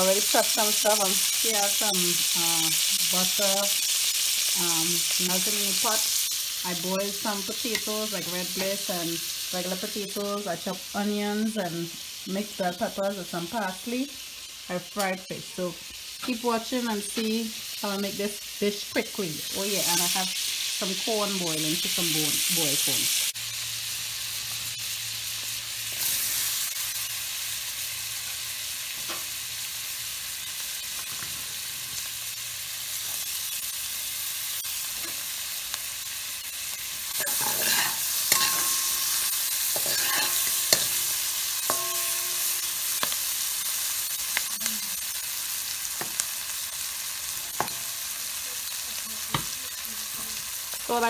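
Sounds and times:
vegetables sizzling in butter: 0.0 - 51.0
spatula scraping a pot: 37.2 - 43.1.

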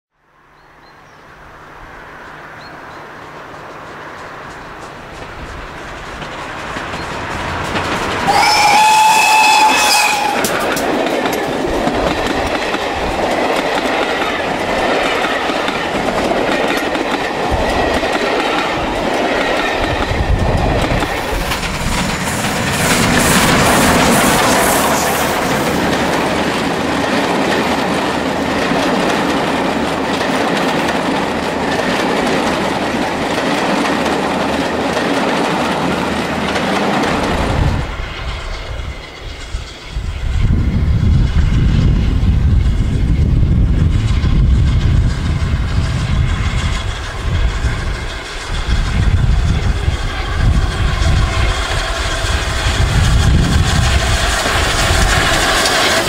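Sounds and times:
deep rumble of steam train: 0.3 - 56.0
train carriages rattling past: 1.3 - 56.0
wheels clicking over rail joints: 3.4 - 24.6, 25.3 - 38.0.

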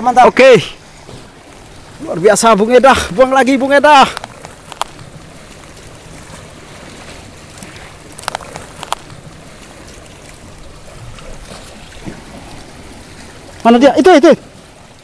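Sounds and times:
seawater lapping: 0.0 - 15.0.

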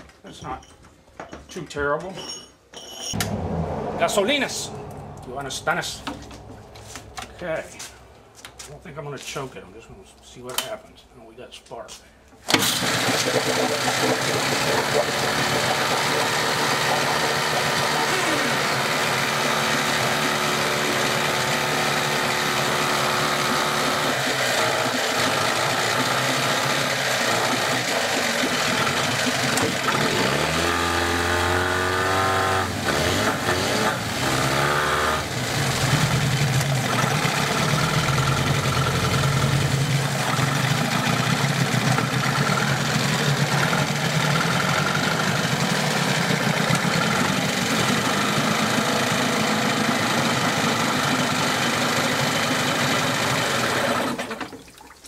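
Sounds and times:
outboard motor running: 12.5 - 54.5
propeller churning water: 12.6 - 31.1, 35.3 - 55.0.

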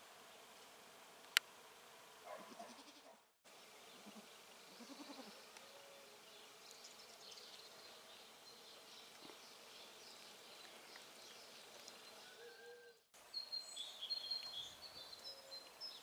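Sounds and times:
goat bleating: 2.4 - 3.1, 4.8 - 5.3.

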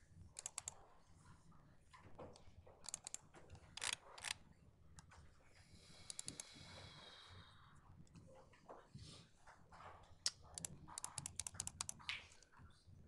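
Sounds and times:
computer mouse clicks: 0.4 - 0.8, 2.3 - 4.4, 6.1 - 6.5, 10.2 - 12.2.

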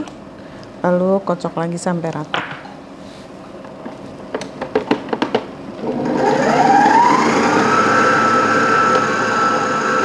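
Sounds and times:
stand mixer motor whining: 5.8 - 10.0.

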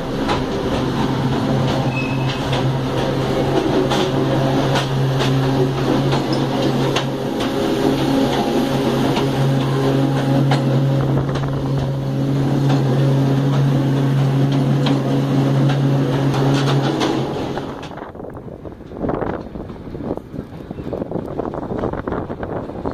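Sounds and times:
diesel locomotive engine drone: 0.0 - 22.9.

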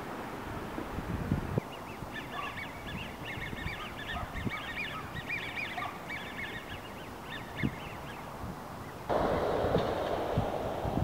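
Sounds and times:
waterfowl calling: 1.7 - 8.2
low wind rumble: 7.0 - 11.0.

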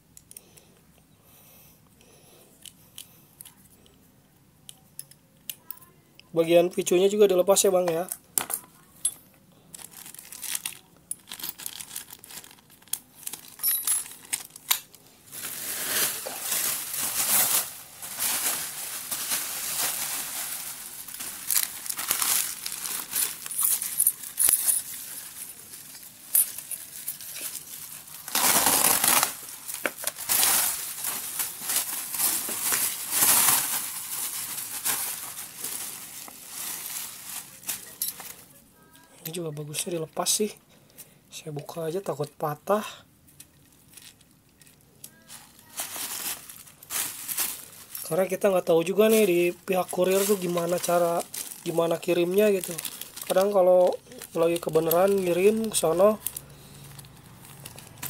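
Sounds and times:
plastic bag rustling: 9.7 - 38.6, 43.6 - 58.0
bubble wrap crinkling: 9.7 - 39.0, 43.3 - 58.0.

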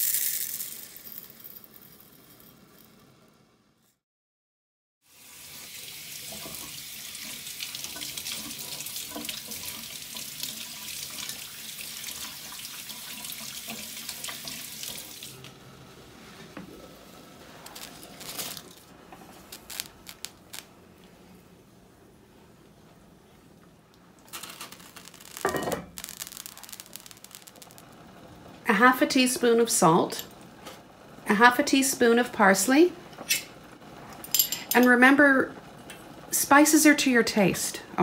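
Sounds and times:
water running from tap: 5.1 - 15.5.

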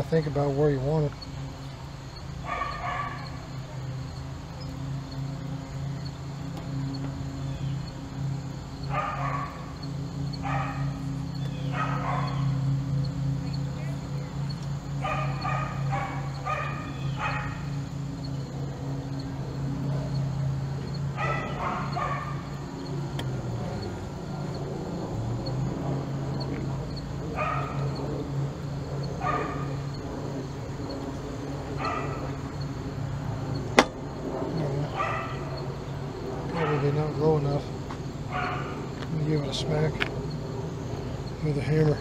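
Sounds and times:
steady low hum: 0.0 - 42.0
dog yipping: 2.5 - 3.3, 8.9 - 9.6, 11.7 - 12.5, 15.0 - 17.6, 21.2 - 22.4, 27.4 - 27.8, 29.2 - 29.7, 31.8 - 32.2, 35.0 - 35.4, 38.3 - 38.8.

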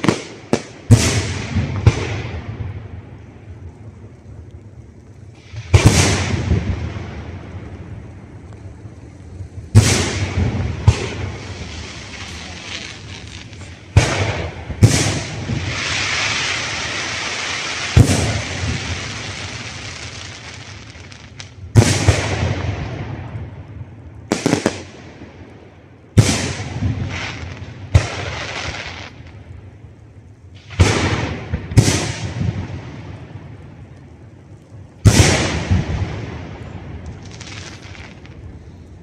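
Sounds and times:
firework shells booming: 0.0 - 3.2, 5.4 - 7.9, 9.7 - 25.4, 30.6 - 33.6, 35.0 - 38.4
firework crackling and hiss: 0.0 - 39.0.

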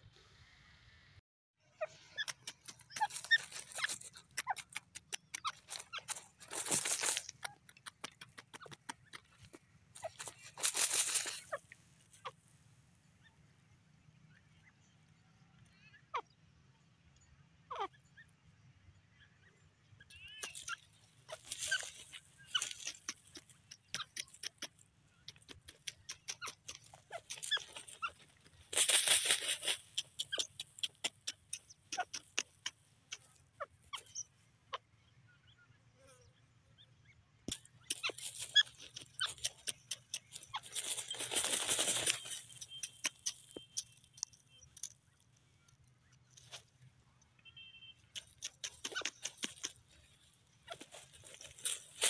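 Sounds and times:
bird scratching in stony soil: 2.0 - 12.3, 20.2 - 34.2, 37.5 - 46.9, 48.0 - 52.0.

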